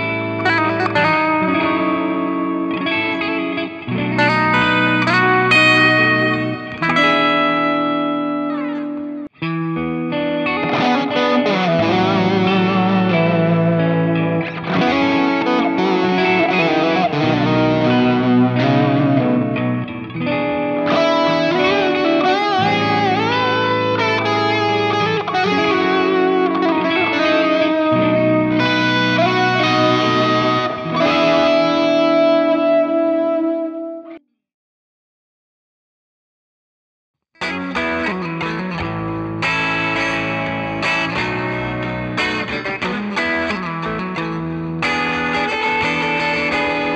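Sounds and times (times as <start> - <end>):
electric guitar lead: 0.0 - 34.3, 37.4 - 46.9.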